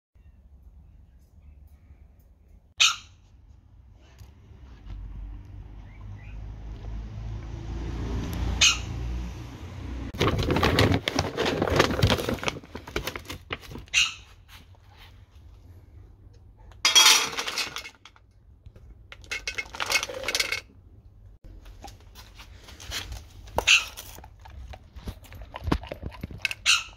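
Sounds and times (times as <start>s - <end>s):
kibble clattering into a metal bowl: 16.9s - 18.2s, 19.1s - 20.7s
dry kibble rattling in a cup: 19.2s - 20.6s.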